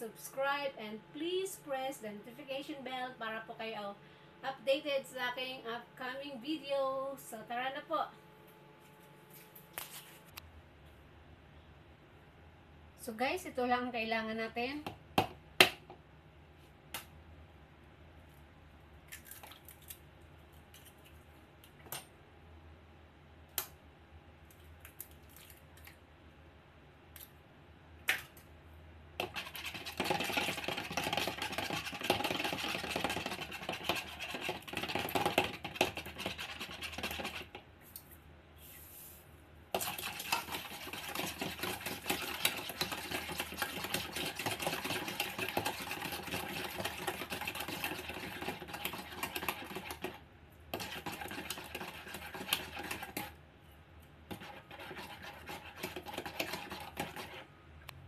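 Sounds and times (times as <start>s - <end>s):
wire whisk beating eggs: 29.2s - 37.6s, 39.7s - 53.4s, 54.3s - 57.5s
egg cracking taps: 29.2s - 37.7s.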